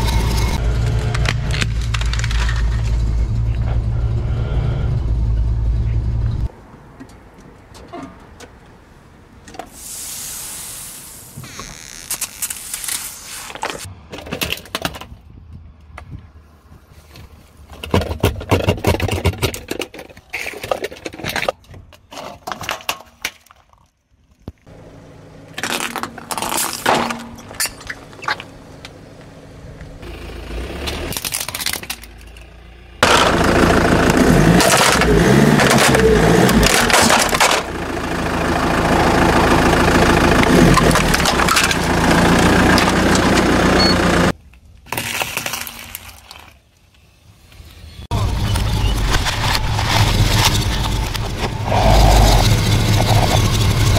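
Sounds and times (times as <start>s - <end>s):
plastic toys cracking under tyre: 1.1s - 2.8s, 30.9s - 33.3s, 34.6s - 37.7s, 44.4s - 46.9s.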